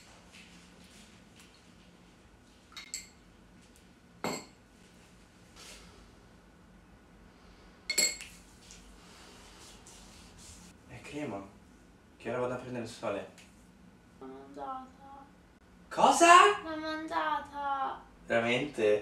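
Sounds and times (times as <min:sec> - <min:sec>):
spoon clinking against glass: 0:02.8 - 0:03.2, 0:07.9 - 0:08.3.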